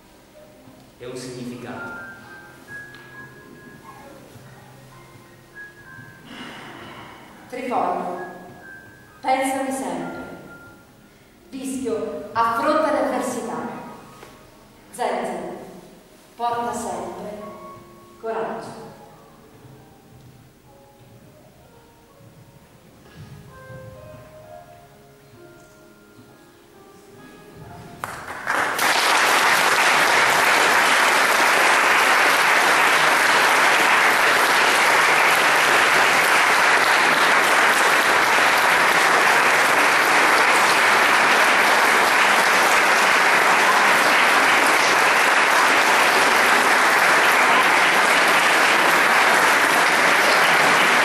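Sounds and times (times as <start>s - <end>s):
soft music: 0.0s - 51.0s
audience applauding: 28.0s - 51.0s.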